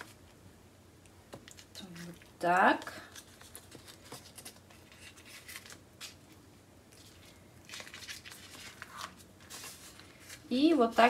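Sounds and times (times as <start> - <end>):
dough rustling on baking paper: 6.9 - 11.0.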